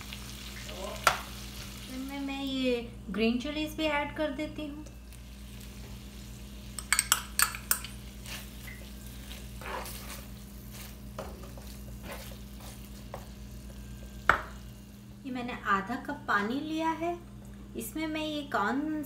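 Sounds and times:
chicken sizzling in pan: 0.0s - 2.2s, 5.0s - 15.2s
spoon clinking against pan: 6.8s - 8.0s.

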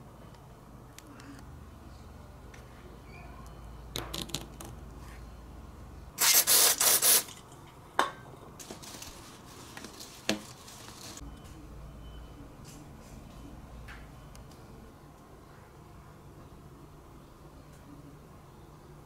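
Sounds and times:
cleaner spray bursts: 6.2s - 7.3s.

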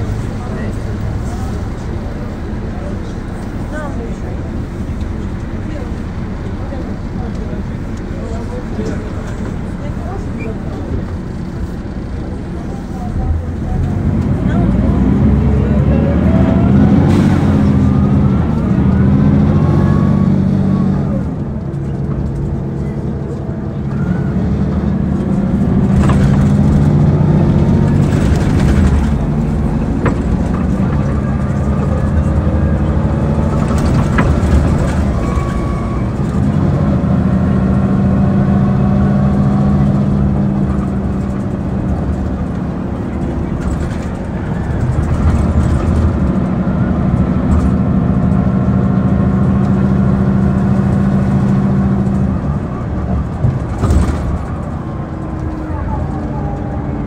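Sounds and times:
bus diesel engine running: 0.0s - 57.0s.

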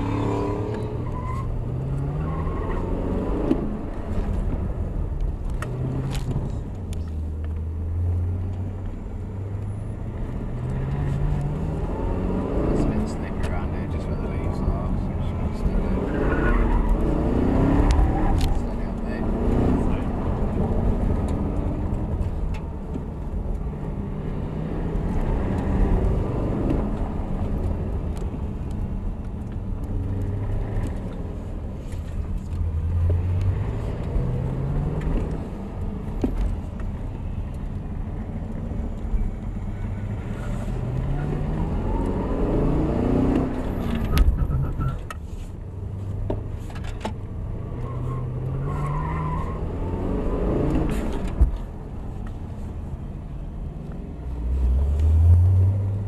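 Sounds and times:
car engine revving: 0.0s - 31.2s, 37.6s - 45.1s.

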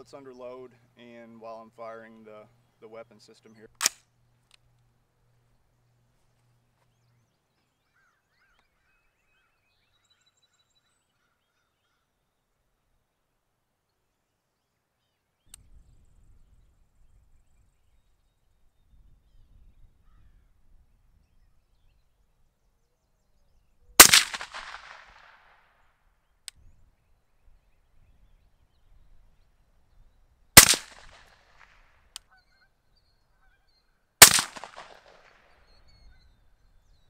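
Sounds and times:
suppressed rifle shots: 3.8s - 4.0s, 24.0s - 25.5s, 30.6s - 31.8s, 34.2s - 35.5s.

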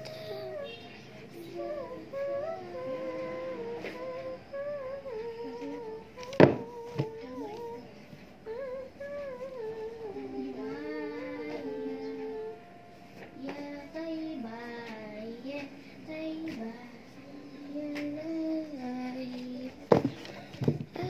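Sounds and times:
girl humming: 1.5s - 12.6s.

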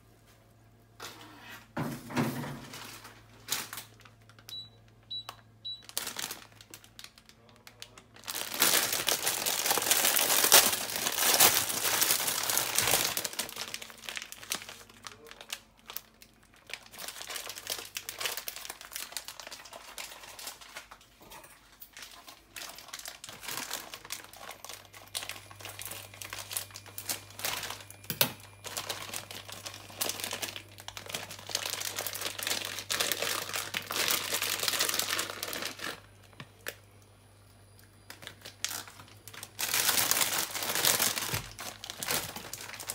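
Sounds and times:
plastic wrapping crinkling: 2.6s - 37.0s, 37.8s - 42.9s.

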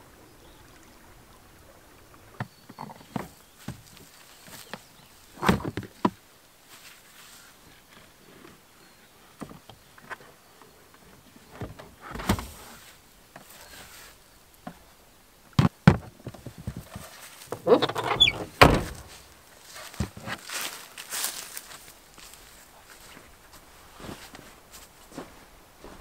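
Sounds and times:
light rustles: 16.3s - 26.0s
clatter with squeak: 17.6s - 18.4s
loud thump: 18.2s - 19.2s.

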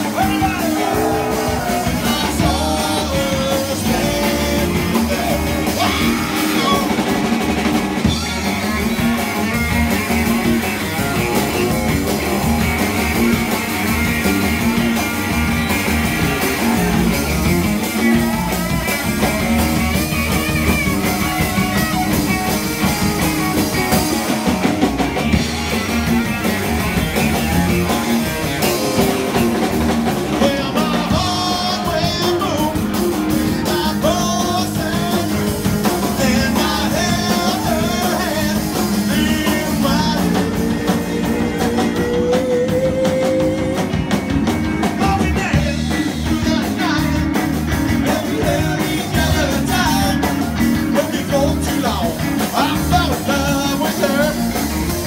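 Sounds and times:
person singing: 0.0s - 7.2s, 30.1s - 44.2s, 44.8s - 54.6s
drum kit: 0.0s - 55.0s
electric guitar: 0.0s - 55.0s.

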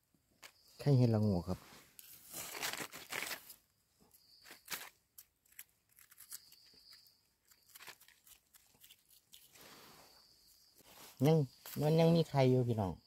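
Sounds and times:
soil and leaves scratching: 0.4s - 12.6s.

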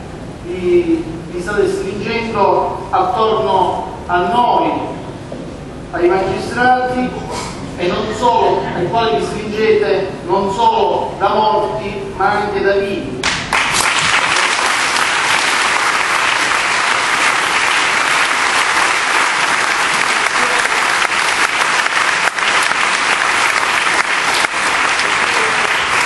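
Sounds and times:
audience applauding: 13.2s - 26.0s.

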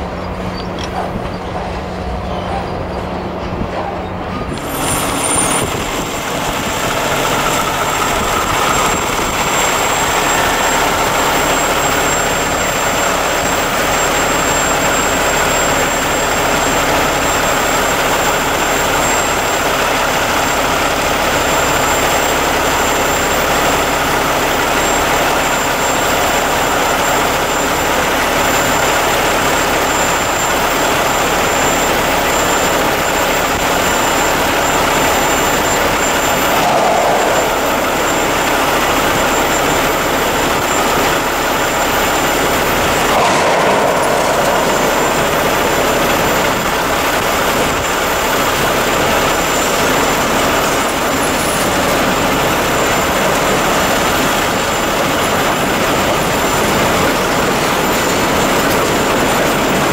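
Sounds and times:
locomotive engine drone: 0.0s - 59.9s
faint high whine: 32.2s - 53.6s.

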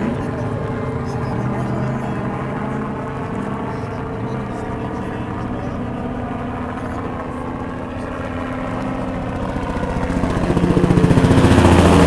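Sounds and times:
helicopter engine and rotor drone: 0.0s - 12.0s.

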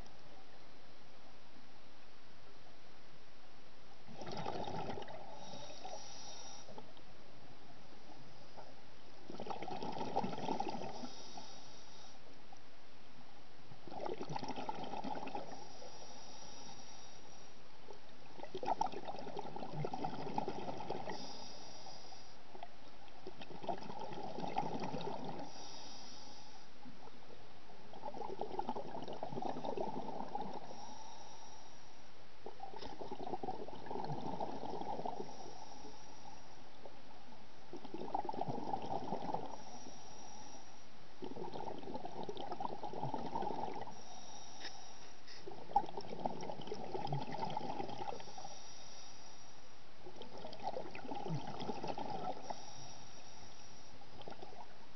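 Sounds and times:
rush of exhaled bubbles: 4.1s - 6.0s, 9.3s - 11.2s, 13.9s - 15.7s, 18.3s - 21.4s, 23.2s - 25.6s, 27.9s - 30.9s, 32.5s - 35.6s, 37.7s - 39.7s, 41.2s - 44.0s, 45.4s - 48.6s, 50.0s - 53.0s
regulator inhalation hiss: 5.3s - 6.8s, 10.9s - 12.2s, 15.5s - 17.6s, 21.1s - 22.4s, 25.4s - 26.7s, 30.6s - 32.1s, 35.2s - 36.6s, 39.5s - 40.9s, 43.9s - 45.5s, 48.2s - 49.8s, 52.4s - 54.0s.

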